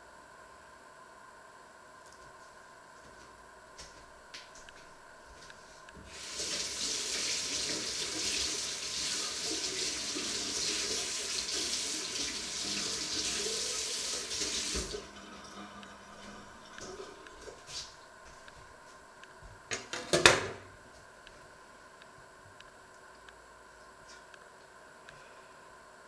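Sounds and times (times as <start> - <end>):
tap running into a sink: 14.3 - 15.0.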